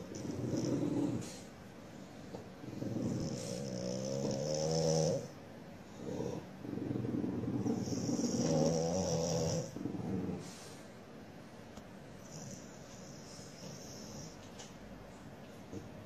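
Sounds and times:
dog growling: 0:00.0 - 0:01.6, 0:02.3 - 0:10.8.

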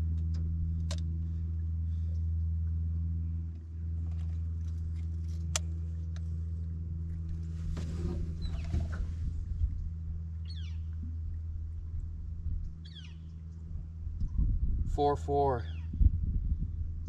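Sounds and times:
small boat motor humming: 0:00.0 - 0:14.8
short rustle: 0:07.4 - 0:09.6.

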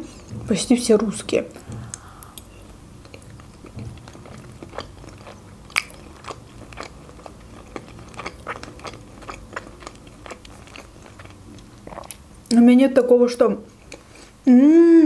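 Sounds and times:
person chewing wet food: 0:01.6 - 0:12.6, 0:13.8 - 0:14.4.

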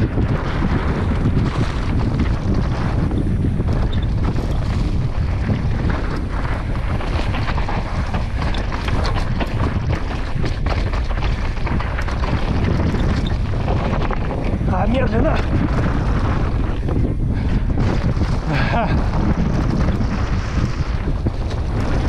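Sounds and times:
bike rattling over bumps: 0:00.0 - 0:22.0
tyres rolling on dirt: 0:00.0 - 0:22.0
wind buffeting microphone: 0:00.0 - 0:22.0.

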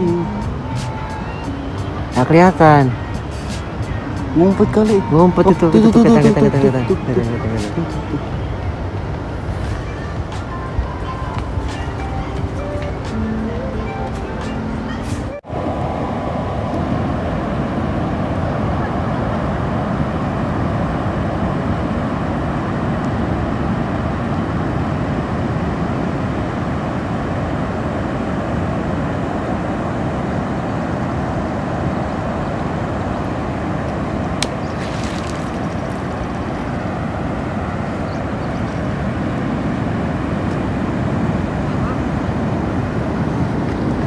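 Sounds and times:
surf breaking: 0:34.3 - 0:37.6.

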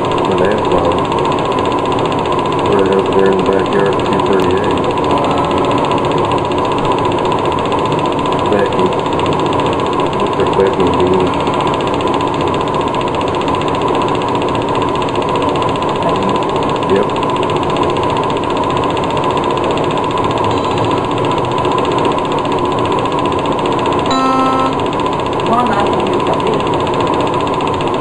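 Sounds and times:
film projector whirring and clattering: 0:00.0 - 0:28.0.

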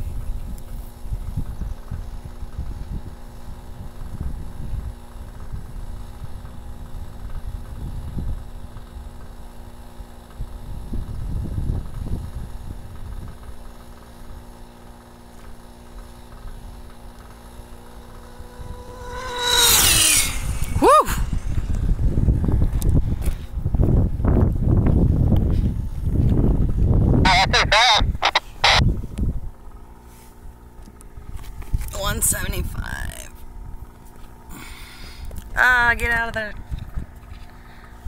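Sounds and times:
wind buffeting microphone: 0:00.0 - 0:08.8, 0:10.3 - 0:13.5, 0:18.1 - 0:27.3, 0:36.5 - 0:38.0
faint steady hum: 0:00.0 - 0:38.0.

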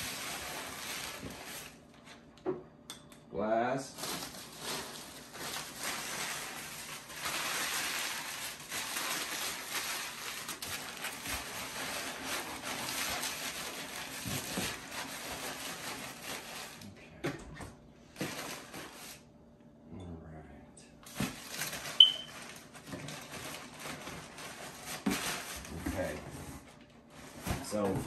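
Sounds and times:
packing paper crinkling: 0:00.0 - 0:01.9, 0:03.9 - 0:16.9, 0:18.1 - 0:19.2, 0:21.0 - 0:26.2.

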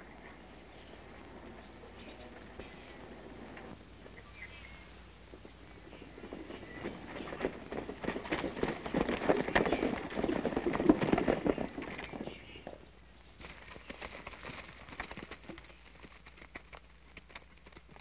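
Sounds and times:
horses galloping over dirt: 0:00.0 - 0:18.0.

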